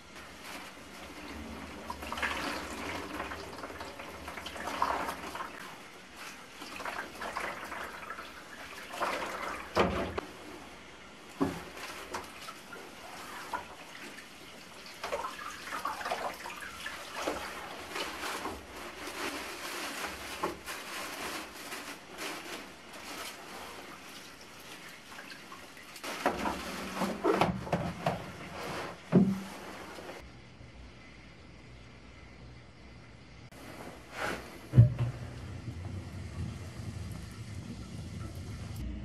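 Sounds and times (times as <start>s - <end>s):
brooms swishing in water: 0.0s - 30.3s, 33.5s - 38.8s
water splashing and dripping: 11.3s - 28.2s.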